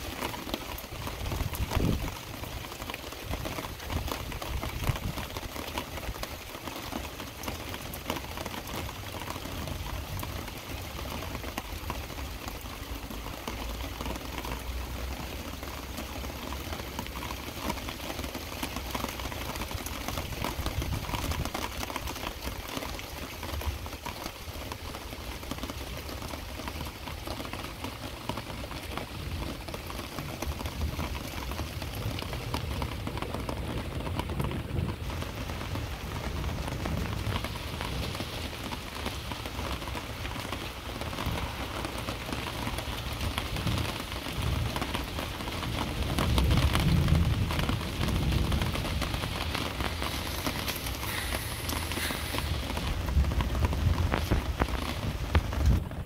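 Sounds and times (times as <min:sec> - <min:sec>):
heavy rain falling: 0:00.0 - 0:56.0.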